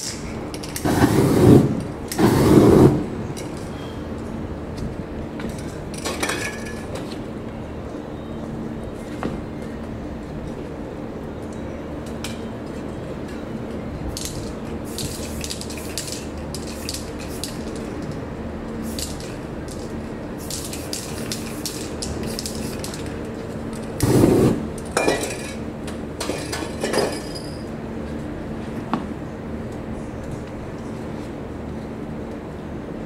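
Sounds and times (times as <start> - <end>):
spray paint can hissing: 0.7 - 3.1, 14.2 - 18.0, 18.8 - 23.1, 23.8 - 24.7
whoosh of paint igniting: 0.8 - 3.2, 24.0 - 24.7.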